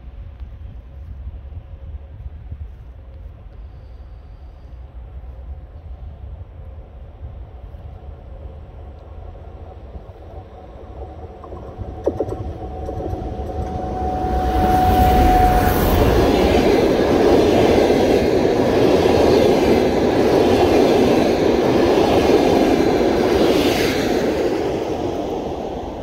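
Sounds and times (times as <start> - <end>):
locomotive whine: 7.4 - 26.0
train wheels on rails: 7.4 - 26.0.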